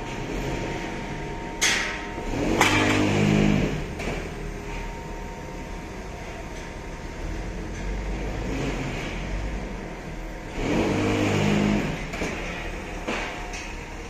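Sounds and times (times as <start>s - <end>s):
metal clank: 1.5s - 4.3s
truck engine revving: 2.2s - 4.5s, 7.0s - 13.6s.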